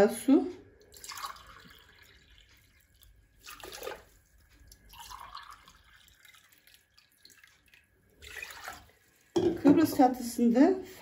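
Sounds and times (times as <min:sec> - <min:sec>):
water pouring into a glass: 0:00.8 - 0:09.3.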